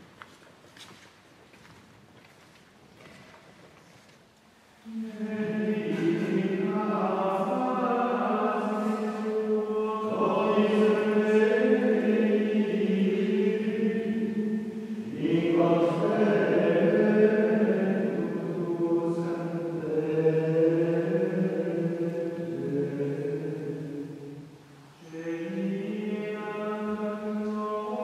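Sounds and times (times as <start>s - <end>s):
men chanting: 4.9s - 23.8s, 25.0s - 28.0s.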